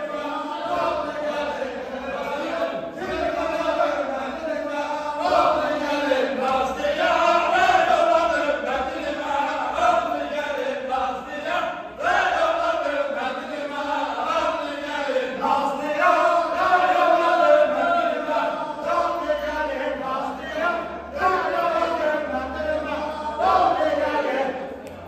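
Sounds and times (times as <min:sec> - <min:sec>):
men singing together: 0:00.0 - 0:25.0.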